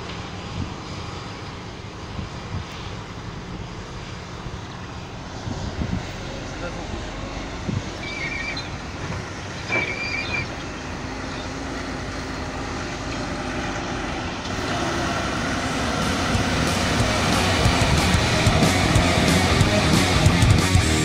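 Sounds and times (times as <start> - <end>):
diesel truck engine: 0.0 - 21.0
short high squeals: 7.7 - 11.6.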